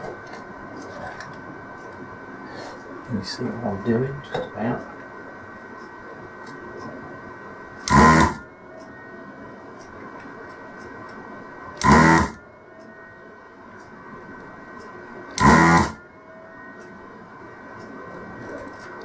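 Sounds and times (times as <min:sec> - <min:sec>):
vacuum pump buzzing: 0:07.8 - 0:08.5, 0:11.8 - 0:12.4, 0:15.3 - 0:16.0.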